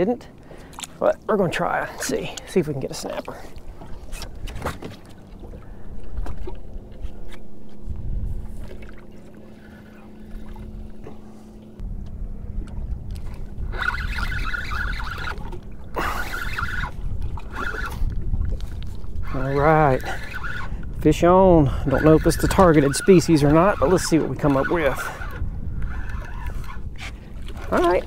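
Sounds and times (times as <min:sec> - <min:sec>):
steady low hum: 0:00.0 - 0:27.7
water lapping at boat hull: 0:00.0 - 0:28.0
wind rumbling on microphone: 0:00.0 - 0:28.0
fishing reel rattle: 0:13.7 - 0:15.5, 0:21.9 - 0:26.8.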